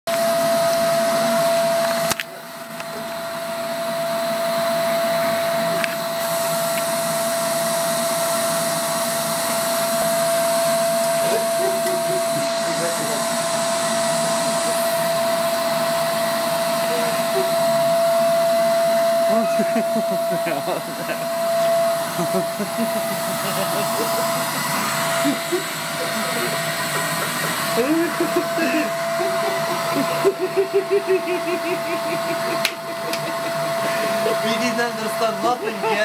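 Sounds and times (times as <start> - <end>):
vacuum cleaner whining: 0.1 - 36.0
vacuum cleaner click: 1.8 - 2.9, 32.5 - 33.4.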